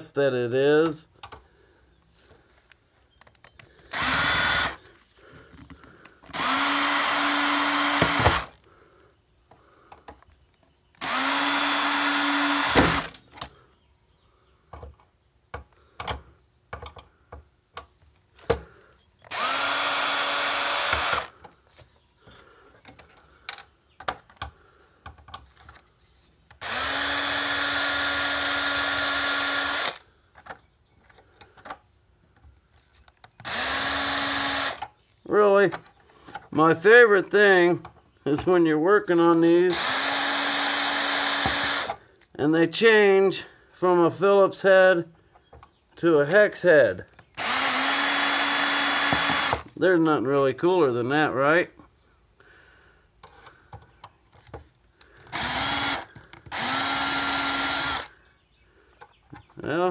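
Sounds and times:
electric drill whirring: 0:03.8 - 0:04.9, 0:06.3 - 0:08.6, 0:11.0 - 0:13.3, 0:19.2 - 0:21.4, 0:26.6 - 0:30.0, 0:33.4 - 0:34.9, 0:39.7 - 0:42.0, 0:47.4 - 0:49.7, 0:55.0 - 0:58.2.

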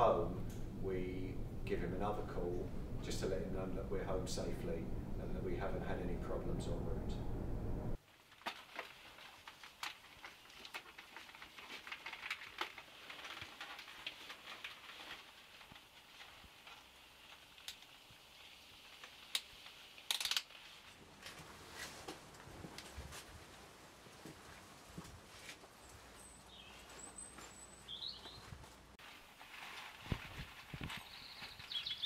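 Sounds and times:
jacket rustling: 0:20.5 - 0:31.4.

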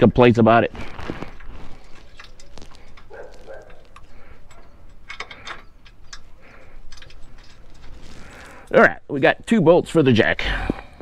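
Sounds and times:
metallic clicks and knocks: 0:01.4 - 0:08.1.

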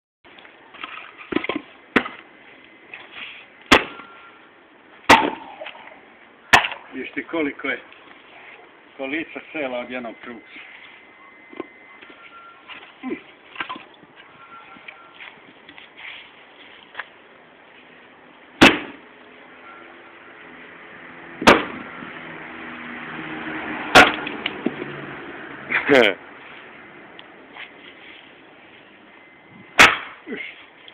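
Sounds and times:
axe chopping firewood: 0:01.3 - 0:02.3, 0:03.7 - 0:04.1, 0:05.1 - 0:05.8, 0:18.6 - 0:19.0, 0:21.4 - 0:21.8, 0:23.9 - 0:24.7, 0:29.8 - 0:30.4.

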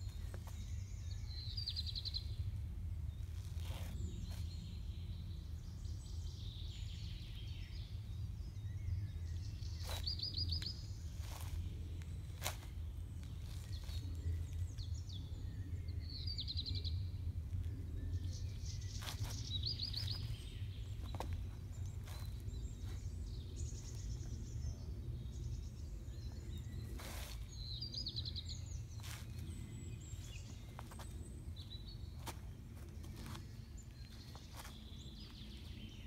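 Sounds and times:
soft scuffs: 0:03.3 - 0:04.6, 0:09.8 - 0:14.8, 0:18.8 - 0:24.4, 0:26.7 - 0:28.0, 0:28.7 - 0:36.0.

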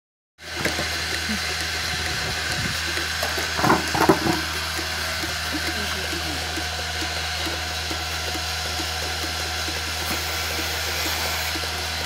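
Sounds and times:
vacuum pump humming: 0:00.4 - 0:12.0
hiss of air and milk: 0:10.0 - 0:12.0.

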